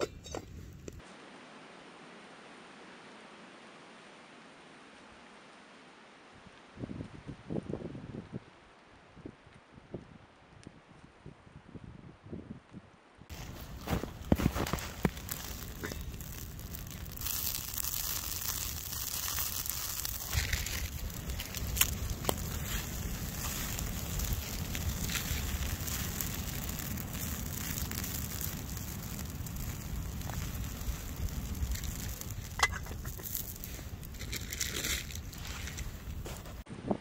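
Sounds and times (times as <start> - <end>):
campfire crackling and popping: 13.3 - 36.6
low rumble: 13.4 - 36.6.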